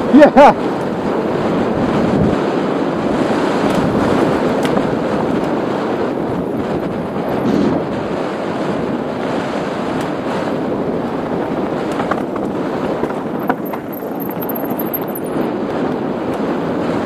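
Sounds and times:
wind on microphone: 0.0s - 17.0s
tyres rolling over stones: 11.1s - 15.4s
bike knocking over rocks: 11.3s - 15.2s.

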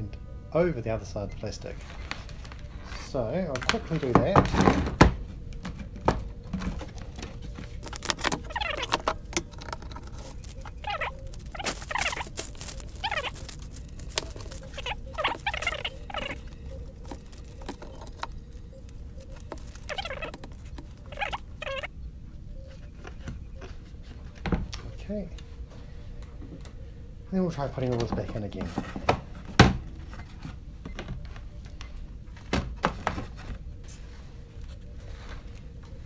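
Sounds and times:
plastic and paper sheets rustling: 6.6s - 21.9s.

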